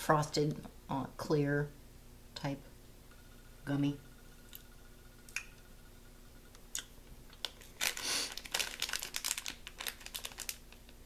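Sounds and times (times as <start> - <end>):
candy wrapper crinkling: 7.3 - 11.0.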